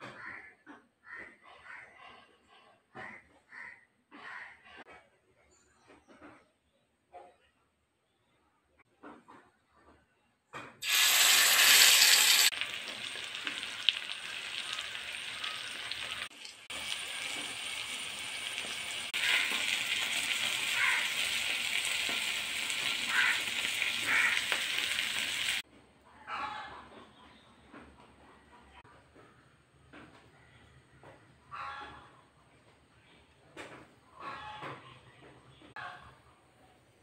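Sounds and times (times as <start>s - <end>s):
fish sizzling in hot oil: 10.8s - 25.6s.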